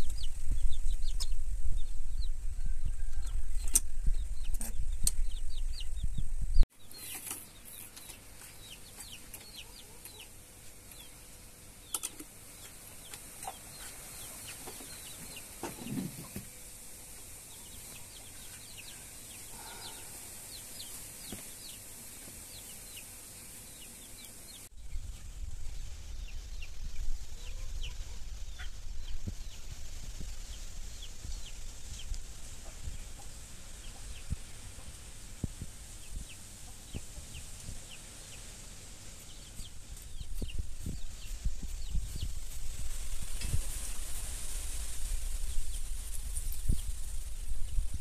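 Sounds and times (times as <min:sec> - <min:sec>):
chickens clucking: 0:00.0 - 0:06.2, 0:06.8 - 0:11.2, 0:11.8 - 0:23.2, 0:26.2 - 0:29.6, 0:30.9 - 0:38.5
low rumble: 0:00.0 - 0:06.7
small birds chirping: 0:00.0 - 0:48.0.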